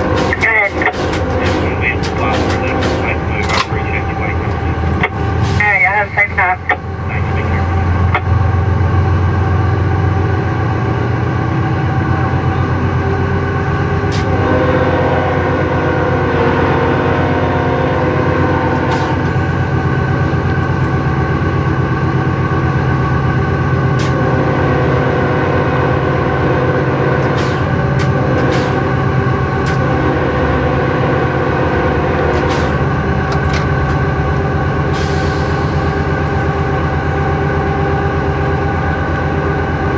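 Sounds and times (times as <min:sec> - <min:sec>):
sharp clicks and rattles: 0:00.0 - 0:05.2, 0:33.1 - 0:34.1
diesel locomotive engine drone: 0:00.0 - 0:39.9.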